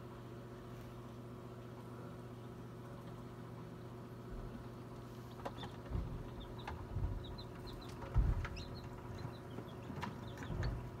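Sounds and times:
incubator low hum: 0.0 - 11.0
chicks peeping: 5.2 - 11.0.

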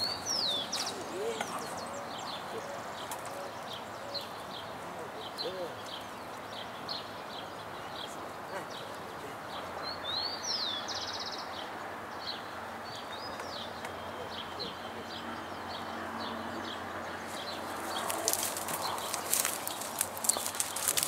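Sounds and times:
bird chirps: 0.0 - 21.0
crackling and scuffing: 17.2 - 21.0.

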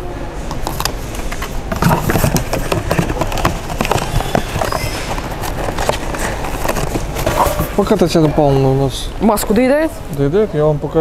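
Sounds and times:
cardboard packaging rustling: 0.6 - 8.5.

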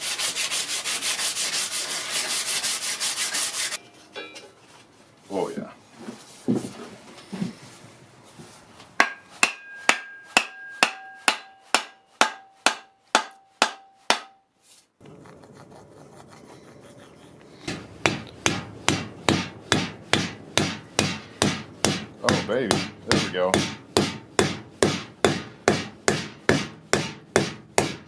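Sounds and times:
wooden mallet striking axe handle: 9.0 - 14.4.

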